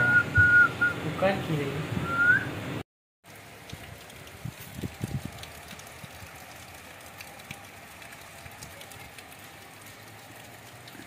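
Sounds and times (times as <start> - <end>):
rain falling: 3.2 - 11.0.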